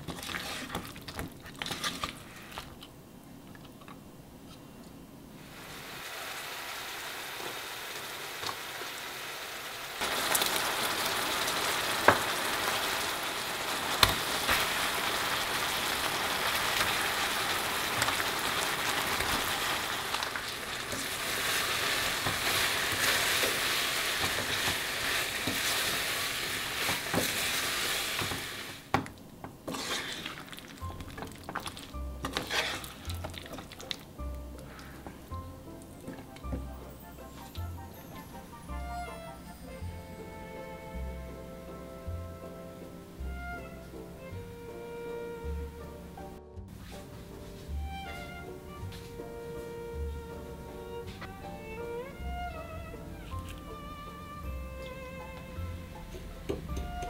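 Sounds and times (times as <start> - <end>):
wooden spatula stirring: 0.0 - 2.9, 13.9 - 37.6
sauce sizzling in frying pan: 5.4 - 29.0, 29.6 - 35.2.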